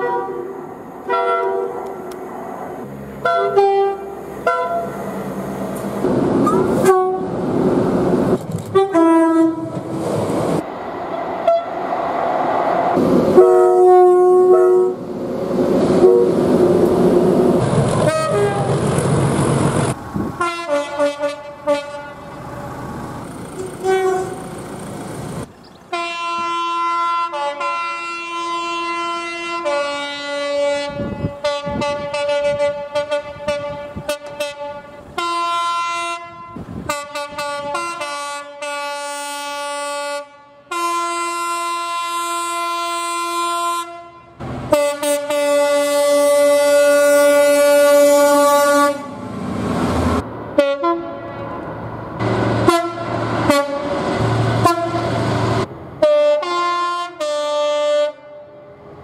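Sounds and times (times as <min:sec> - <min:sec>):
two-tone train air horn: 0:00.0 - 0:02.0, 0:03.2 - 0:05.4, 0:06.4 - 0:07.4, 0:08.7 - 0:09.9, 0:11.4 - 0:11.8, 0:13.3 - 0:15.0, 0:16.0 - 0:16.4, 0:18.0 - 0:18.8, 0:20.4 - 0:22.4, 0:23.6 - 0:24.7, 0:25.9 - 0:49.3, 0:50.6 - 0:51.5, 0:52.2 - 0:55.2, 0:56.0 - 0:58.7
locomotive engine: 0:00.0 - 0:26.9, 0:44.4 - 0:56.1
rumble of passing wagons: 0:14.9 - 0:26.0, 0:51.3 - 0:56.0.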